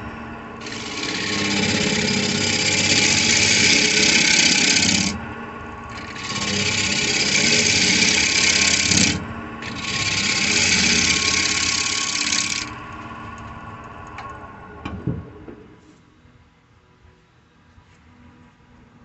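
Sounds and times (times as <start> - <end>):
lathe motor humming: 0.0 - 14.2
gouge hissing on spinning wood: 0.6 - 5.2, 6.0 - 12.7.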